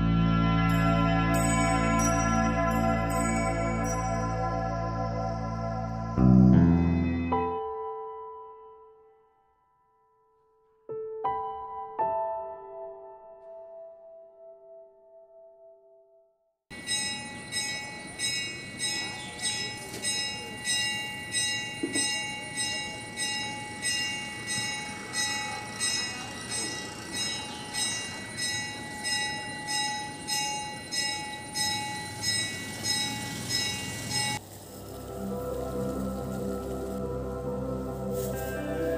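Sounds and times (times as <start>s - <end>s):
bell ringing: 0.6s - 5.4s, 16.7s - 34.4s.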